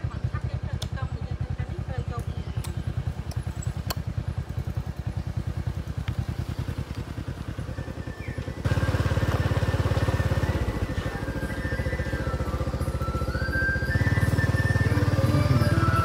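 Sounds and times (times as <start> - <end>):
small motorcycle engine running: 0.0 - 16.0
music: 8.7 - 16.0.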